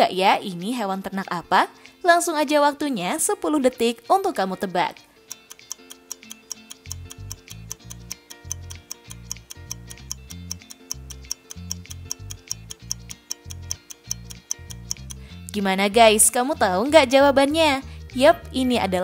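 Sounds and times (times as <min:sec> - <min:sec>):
fast clock-like ticking: 0:05.3 - 0:15.3
background music with bass: 0:06.7 - 0:19.0.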